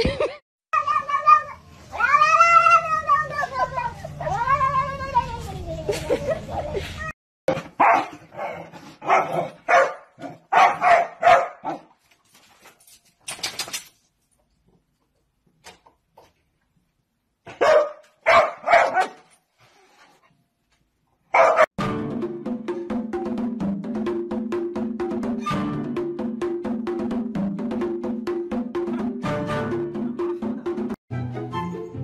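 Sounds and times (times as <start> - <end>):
dog barking: 7.8 - 11.9, 17.4 - 19.3, 21.3 - 21.7.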